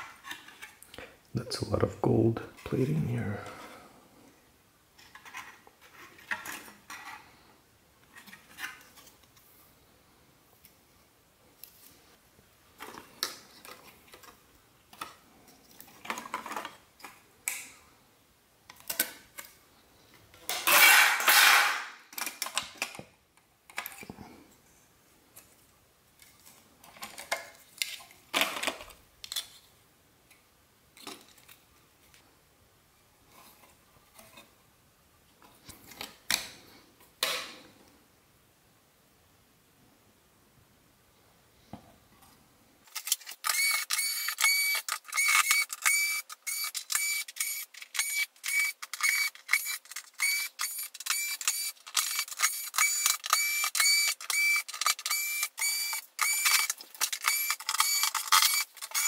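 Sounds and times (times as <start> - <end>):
clicks and clatter of parts handled: 20.3 - 23.1, 23.7 - 24.2, 42.9 - 59.0.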